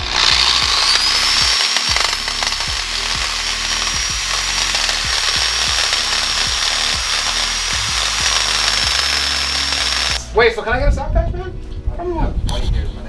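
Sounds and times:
electric drill grinding into metal: 0.0s - 10.2s.

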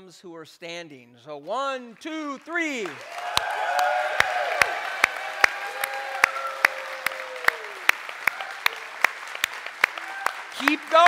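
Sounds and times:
congregation applauding: 2.0s - 11.0s
long held cheers: 3.0s - 9.1s, 9.8s - 11.0s.

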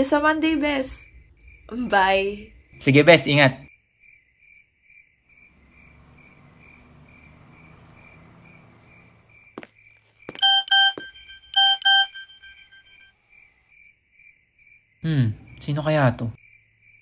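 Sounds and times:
crickets chirping: 0.0s - 11.0s, 11.6s - 17.0s
phone message alert beeps: 10.4s - 13.1s.

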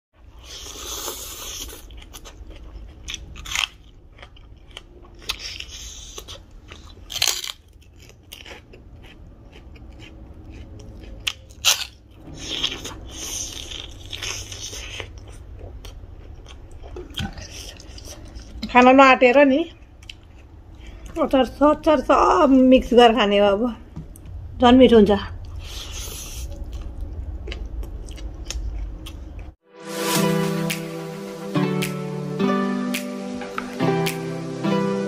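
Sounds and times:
chewing and mouth sounds: 0.4s - 18.8s, 19.7s - 21.2s, 25.4s - 29.6s
crunching snack sticks: 0.5s - 18.6s.

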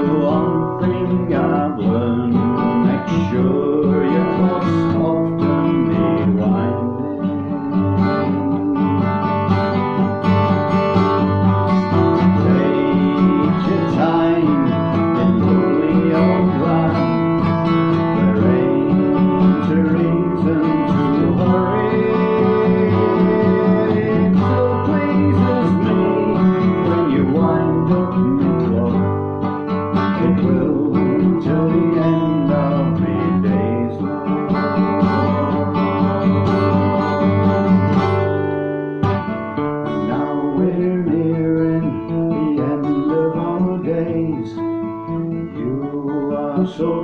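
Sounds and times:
acoustic guitar playing: 0.0s - 47.0s.

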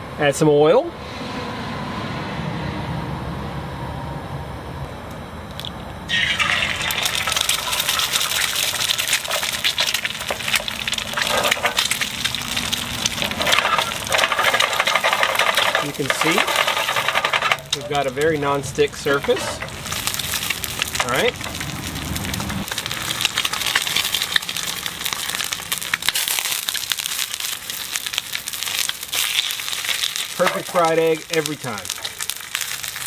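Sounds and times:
oil pouring into pan: 6.1s - 21.8s
egg sizzling in oil: 6.1s - 33.0s.

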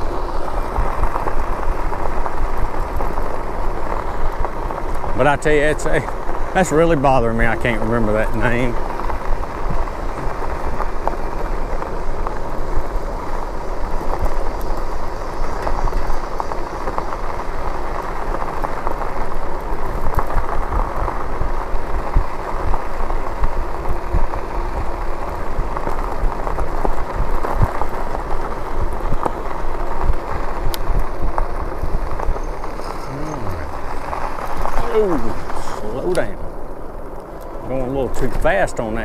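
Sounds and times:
bike tyres crunching over gravel: 0.0s - 39.0s.

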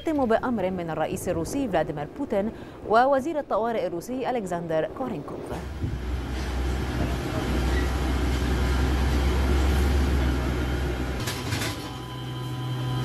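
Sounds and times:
forklift engine rumbling: 5.6s - 13.0s
light machinery hum: 5.6s - 13.0s.

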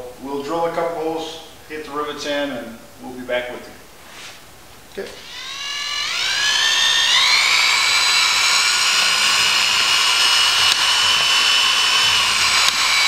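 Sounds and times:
electric drill whining: 5.1s - 13.0s.

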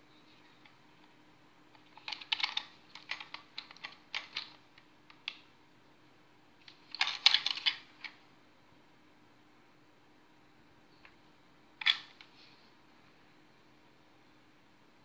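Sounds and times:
plastic toy car clicks and rattles: 1.8s - 4.6s, 6.7s - 8.2s, 11.8s - 12.2s.

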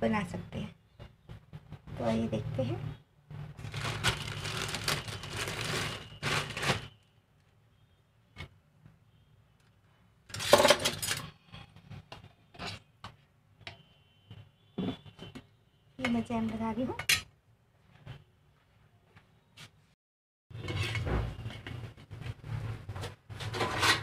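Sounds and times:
plastic bag rustling: 3.6s - 7.0s.

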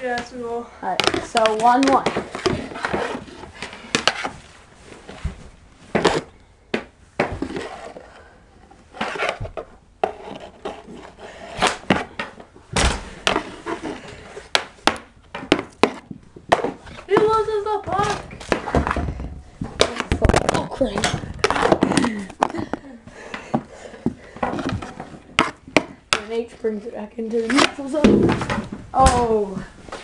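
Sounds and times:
hockey sticks knocking a ball: 0.0s - 4.4s, 5.1s - 8.1s, 9.0s - 26.6s, 27.3s - 30.0s
scraping on floor: 1.0s - 6.3s, 7.2s - 8.2s, 8.9s - 12.4s, 13.0s - 25.6s.

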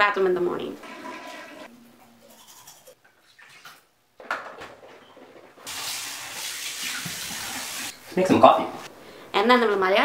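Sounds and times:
water running into sink: 0.8s - 1.7s, 5.7s - 8.0s.

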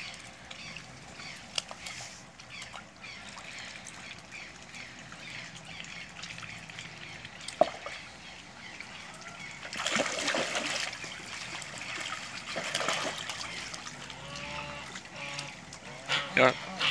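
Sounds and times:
faint trickle of water: 0.0s - 16.9s
sharp water splash: 9.6s - 15.5s.

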